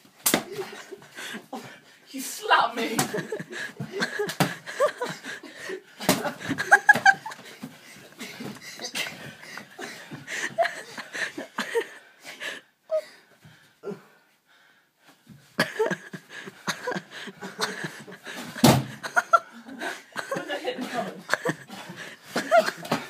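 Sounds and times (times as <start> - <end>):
laughter: 2.9 - 7.6, 8.8 - 12.0, 15.6 - 23.0
heavy wheezy breathing: 4.6 - 6.6, 21.6 - 22.4
thuds and slaps on a bed: 18.6 - 19.0.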